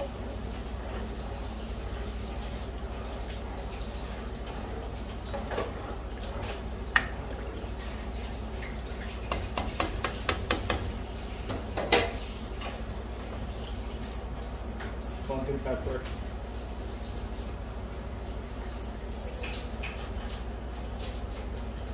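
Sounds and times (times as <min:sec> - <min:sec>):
liquid sloshing in pan: 0:00.5 - 0:14.7
spatula knocking against pan: 0:09.3 - 0:12.1.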